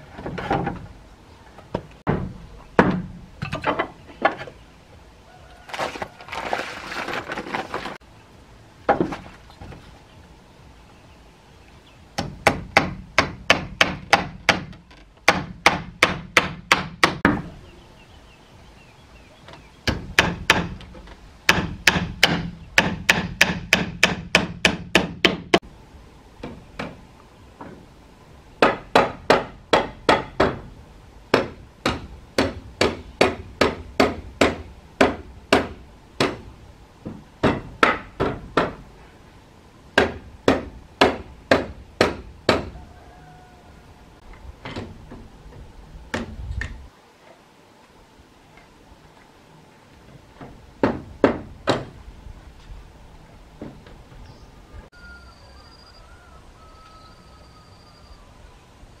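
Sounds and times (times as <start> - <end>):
hammer nailing wooden boards: 12.2 - 17.4, 19.9 - 20.9, 21.5 - 25.6, 28.6 - 30.7, 31.3 - 38.8, 40.0 - 42.8, 50.4 - 51.9.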